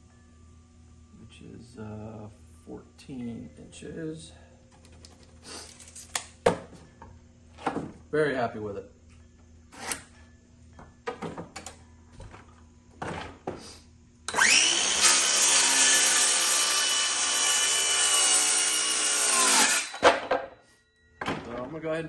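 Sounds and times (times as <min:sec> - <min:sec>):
circular saw cutting wood: 0:14.3 - 0:20.0.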